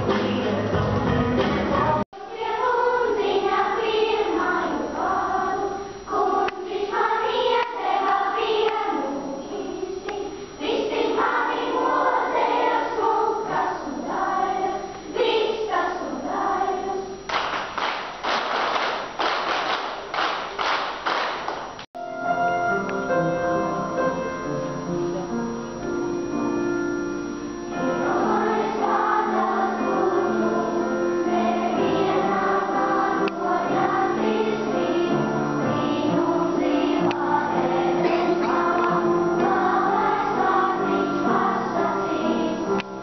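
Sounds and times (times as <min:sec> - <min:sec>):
children's choir singing: 0:00.0 - 0:26.6, 0:27.2 - 0:43.0
applause: 0:17.3 - 0:21.8.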